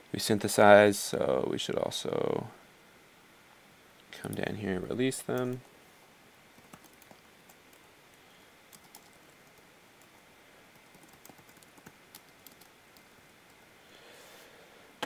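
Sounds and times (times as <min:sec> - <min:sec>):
faint keyboard keystrokes: 0:08.7 - 0:10.1.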